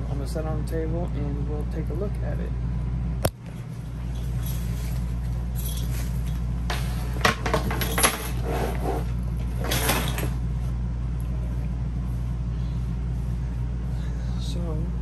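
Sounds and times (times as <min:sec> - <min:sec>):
steady low hum: 0:00.0 - 0:15.0
bag rustling: 0:03.7 - 0:10.3.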